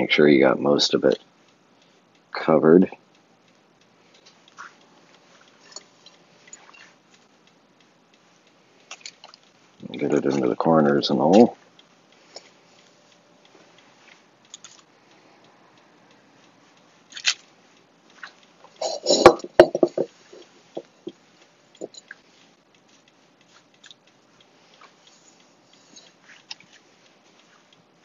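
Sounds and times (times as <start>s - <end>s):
crumbly topping rustling: 22.7s - 28.0s.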